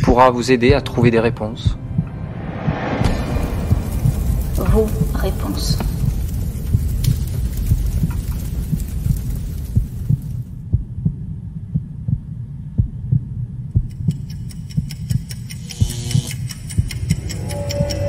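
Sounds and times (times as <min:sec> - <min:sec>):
heartbeat-like thumps: 0:00.0 - 0:18.0
low hum: 0:00.8 - 0:18.0
sharp ticking: 0:03.2 - 0:10.6, 0:13.7 - 0:18.0.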